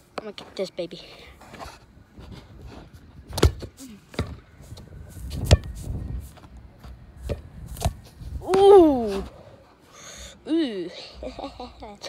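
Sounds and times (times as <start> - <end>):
ball thumping off brick wall: 3.3 - 4.4, 5.3 - 5.8.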